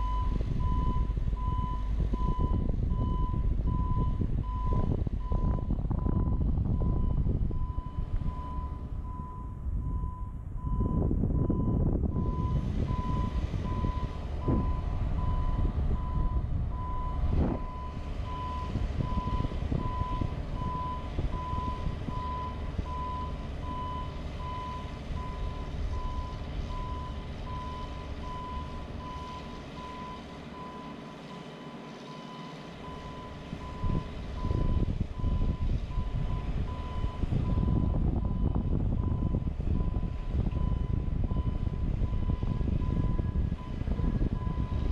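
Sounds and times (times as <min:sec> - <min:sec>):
low rumble: 0:00.0 - 0:30.8, 0:32.2 - 0:44.9.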